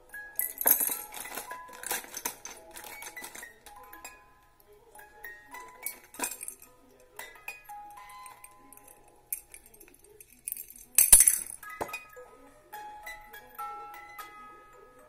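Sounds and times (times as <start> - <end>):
trinkets clicking and clinking: 0.0 - 14.4
music box tinkling tune: 0.0 - 15.0.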